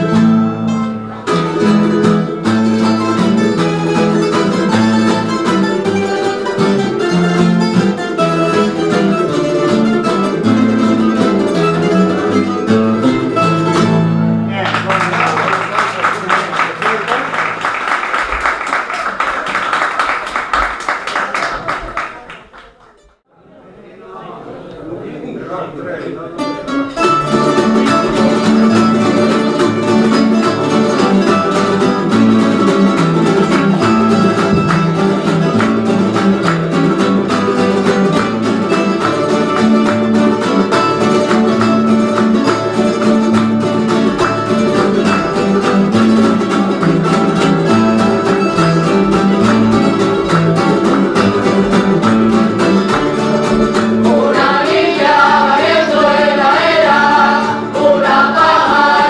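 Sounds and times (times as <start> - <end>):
folk tune on plucked strings: 0.0 - 15.3, 26.4 - 59.0
voices singing: 53.8 - 59.0.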